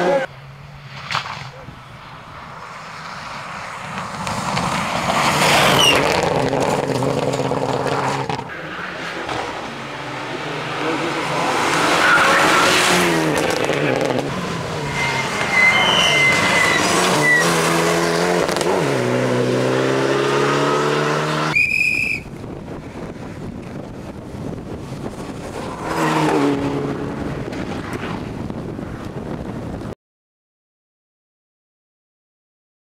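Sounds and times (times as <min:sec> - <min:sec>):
rally car passing: 0:01.8 - 0:21.6, 0:22.4 - 0:29.7
rally car engines revving: 0:02.6 - 0:21.6, 0:22.6 - 0:28.6
high squeal: 0:05.6 - 0:06.1, 0:14.7 - 0:17.6, 0:21.5 - 0:22.3.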